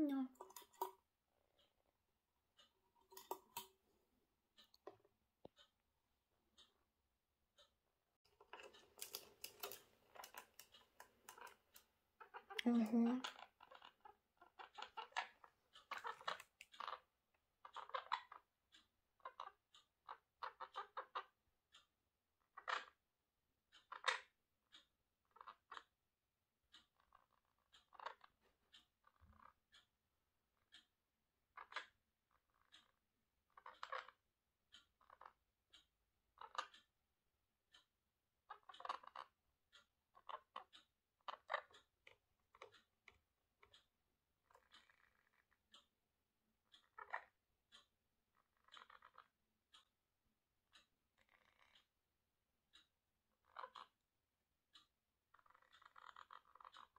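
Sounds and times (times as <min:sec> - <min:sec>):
parakeet chattering: 0:12.2 - 0:15.2
parrot chattering softly: 0:12.2 - 0:17.0, 0:17.7 - 0:18.4, 0:40.1 - 0:40.6, 0:44.4 - 0:45.4, 0:46.8 - 0:47.3, 0:48.3 - 0:49.3, 0:51.2 - 0:51.8, 0:53.4 - 0:53.9, 0:55.3 - 0:56.9.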